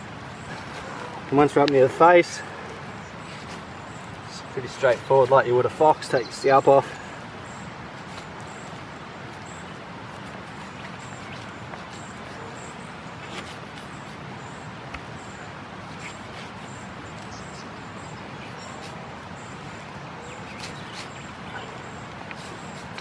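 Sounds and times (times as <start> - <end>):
knife cutting hide: 13.2 - 14.2, 15.9 - 16.8, 22.4 - 23.0.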